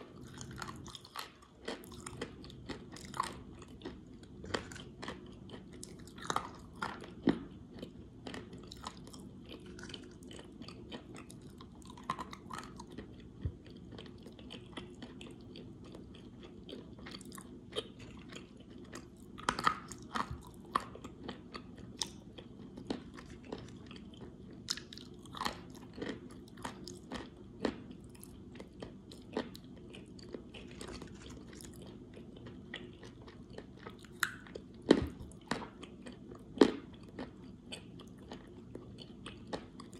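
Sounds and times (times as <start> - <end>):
clay being chewed crunching: 0.0 - 39.9.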